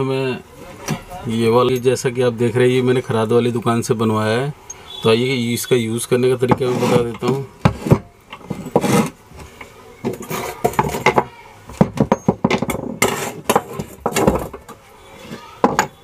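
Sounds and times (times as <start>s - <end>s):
metal clinks and knocks: 10.1s - 14.8s, 15.6s - 16.0s.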